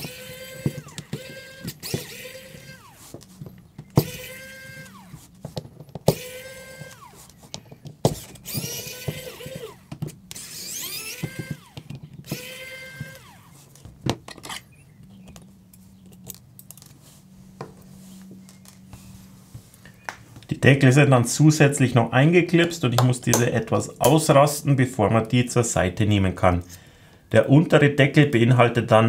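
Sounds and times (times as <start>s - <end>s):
electric screwdriver whirring: 0.0s - 13.8s
tool and screws clicking: 0.0s - 16.9s.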